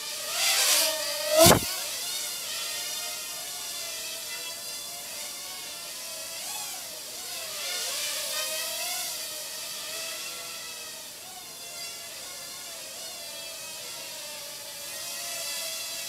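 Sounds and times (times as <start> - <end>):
quadcopter propellers whining: 1.4 - 1.7.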